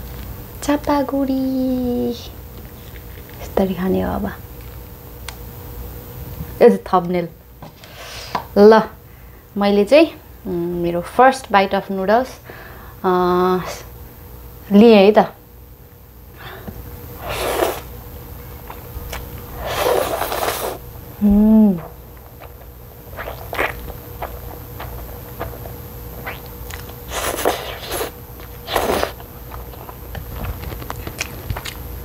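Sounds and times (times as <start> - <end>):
noodles being slurped: 17.2 - 17.9, 19.1 - 20.8, 22.3 - 31.8
wet chewing clicks: 18.7 - 19.3, 22.4 - 31.9.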